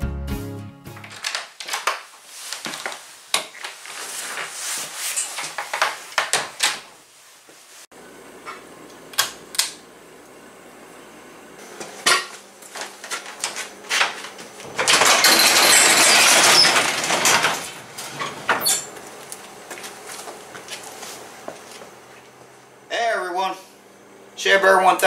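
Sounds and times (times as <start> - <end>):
metal garage door rattling open: 13.9 - 18.9.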